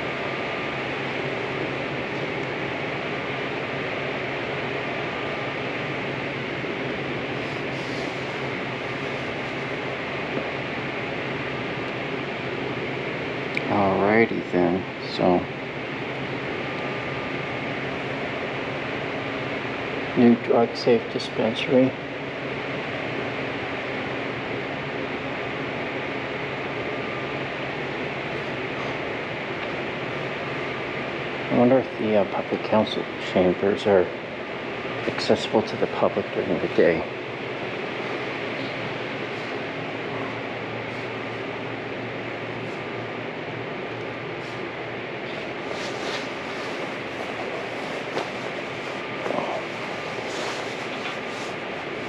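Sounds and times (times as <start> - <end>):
background air hiss: 0.0 - 11.4, 27.5 - 52.0.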